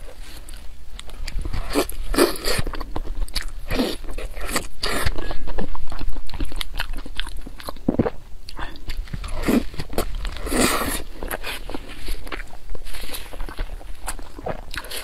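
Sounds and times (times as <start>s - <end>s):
wet chewing: 0.0s - 15.0s.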